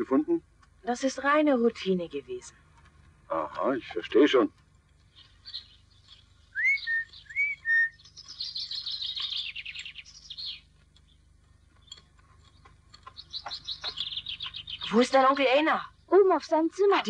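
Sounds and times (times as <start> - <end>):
faint bird chirps: 3.3 - 16.4
bird trill: 5.0 - 16.9
bird whistles: 6.5 - 10.6.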